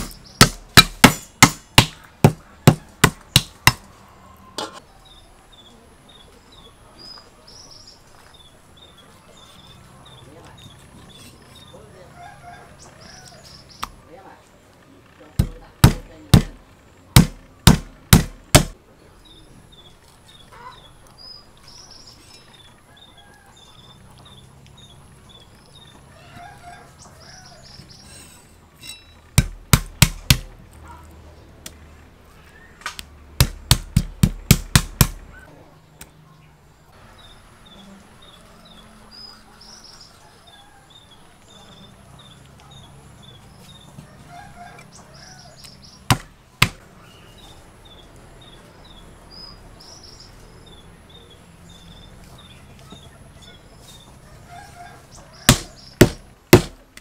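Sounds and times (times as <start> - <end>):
cleaver chopping on wooden board: 0.0 - 3.8, 15.4 - 16.6, 17.2 - 18.8, 29.4 - 30.5, 33.4 - 35.2, 46.1 - 46.8, 55.5 - 56.8
birds calling: 0.0 - 56.9.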